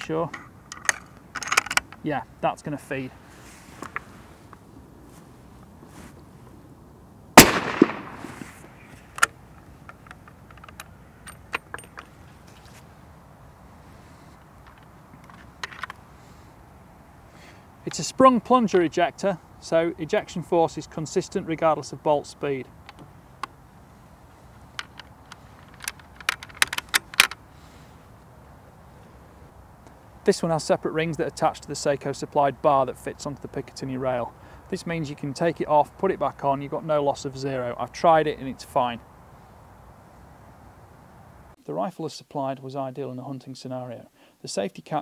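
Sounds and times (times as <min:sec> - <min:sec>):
rifle bolt clicking and clacking: 0:00.3 - 0:02.0, 0:09.1 - 0:12.1, 0:24.7 - 0:27.4
rifle shot: 0:07.4 - 0:08.8.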